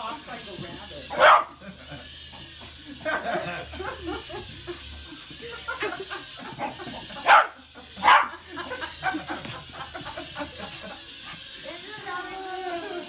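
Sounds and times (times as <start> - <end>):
dog barking: 1.1 - 1.6, 7.2 - 8.4.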